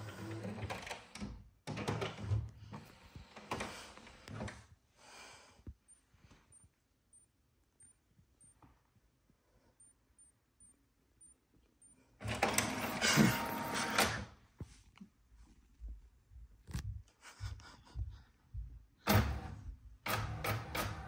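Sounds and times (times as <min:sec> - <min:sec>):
printer mechanism whirring: 0:12.2 - 0:14.3, 0:19.1 - 0:21.0.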